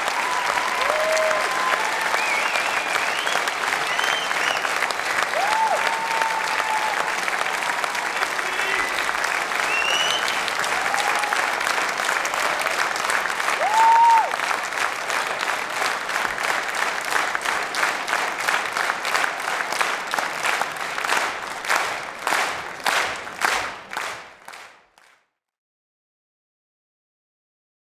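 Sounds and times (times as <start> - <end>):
audience applause: 0.0 - 25.1
rhythmic clapping in unison: 0.0 - 25.3.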